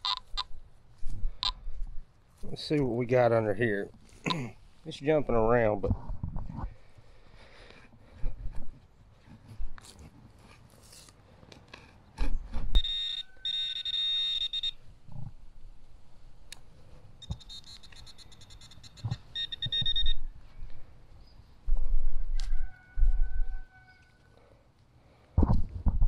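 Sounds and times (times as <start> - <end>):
metal detector pulsing beep: 0.0 - 0.5, 12.7 - 14.8, 17.2 - 20.3.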